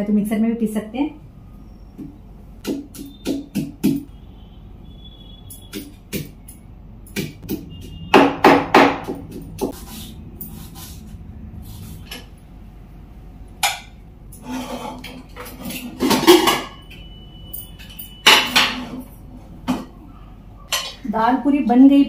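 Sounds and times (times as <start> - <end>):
pestle knocking in mortar: 2.6 - 4.1, 7.1 - 9.8
sharp knocks: 7.2 - 9.8
metallic ring: 16.3 - 18.6.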